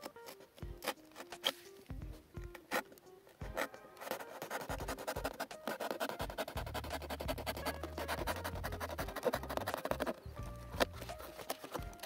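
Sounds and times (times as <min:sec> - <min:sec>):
background music: 0:00.0 - 0:12.0
knife sawing through cardboard: 0:04.2 - 0:10.2.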